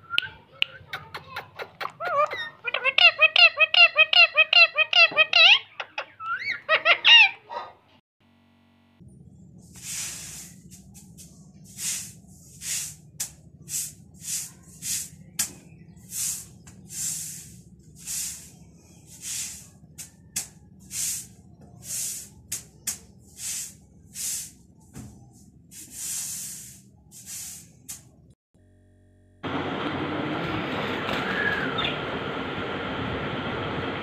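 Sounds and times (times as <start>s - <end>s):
steady low hum: 8.2s - 31.1s
lovebirds hissing: 9.6s - 28.1s.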